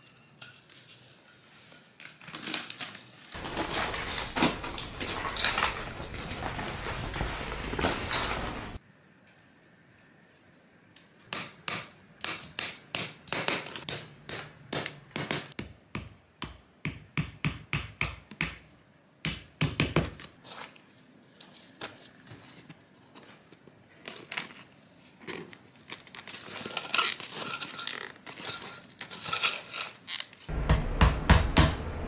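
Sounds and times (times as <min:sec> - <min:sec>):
handling noise: 0:03.3 - 0:08.8.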